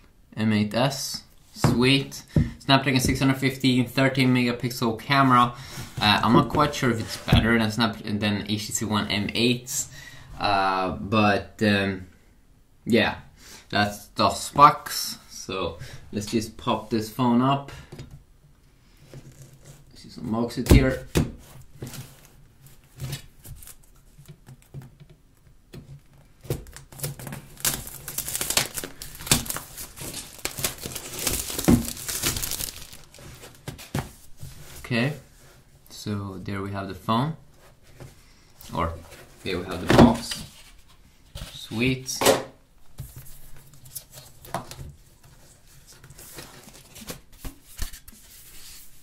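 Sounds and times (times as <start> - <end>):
packaging rustling: 26.2 - 34.0
plastic film crinkling: 26.6 - 33.7
knife slitting plastic wrap: 26.9 - 33.2.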